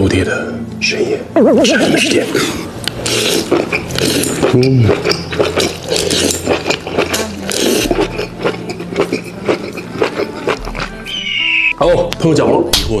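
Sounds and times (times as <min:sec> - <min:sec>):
slurping and chewing: 0:02.8 - 0:11.7
tone falling in pitch: 0:11.0 - 0:12.0.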